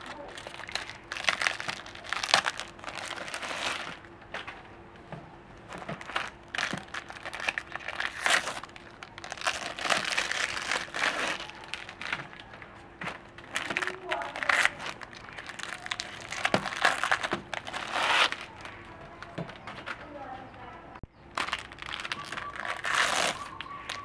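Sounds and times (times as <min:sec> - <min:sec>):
plastic wrappers crinkling and tearing: 0:00.0 - 0:04.6, 0:05.6 - 0:20.0, 0:21.3 - 0:24.0.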